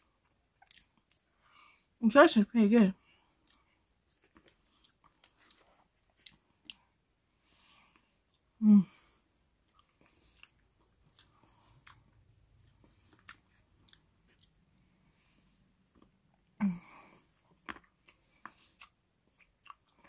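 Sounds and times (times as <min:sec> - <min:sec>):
faint chewing: 0:00.0 - 0:01.8, 0:03.0 - 0:20.0.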